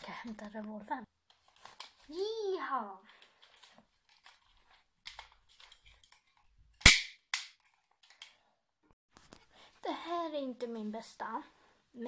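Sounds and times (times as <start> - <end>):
cap gun cracks: 6.8 - 7.6.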